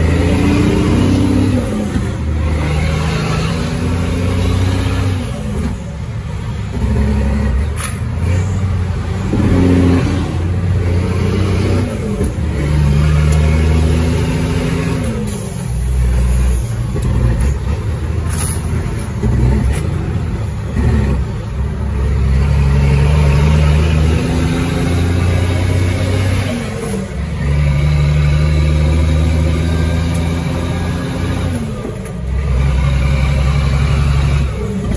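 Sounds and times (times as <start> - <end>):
diesel truck engine revving: 0.0 - 34.9.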